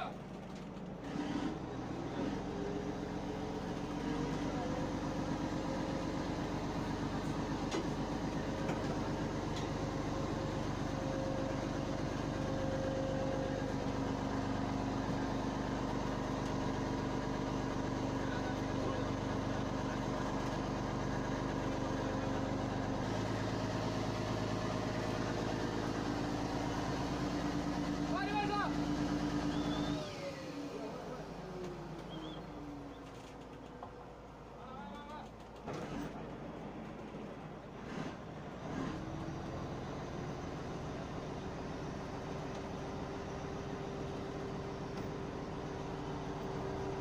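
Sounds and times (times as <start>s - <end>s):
boat engine droning: 1.7s - 35.5s.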